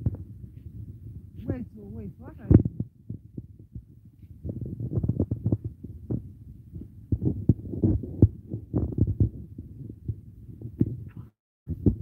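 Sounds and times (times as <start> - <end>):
low rumbling microphone noise: 0.0 - 12.0
dull thumps: 10.6 - 12.0.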